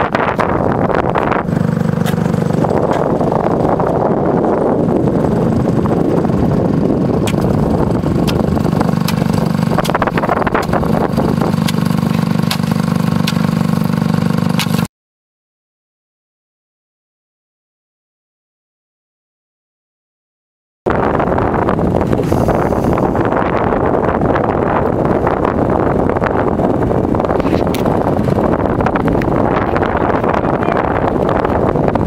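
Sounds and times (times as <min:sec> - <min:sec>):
small vehicle engine running: 0:00.0 - 0:14.9, 0:20.9 - 0:32.0
wind on microphone: 0:00.0 - 0:14.9, 0:20.9 - 0:32.0
sharp clicks or knocks: 0:07.2 - 0:07.6, 0:11.6 - 0:13.5, 0:14.6 - 0:14.9.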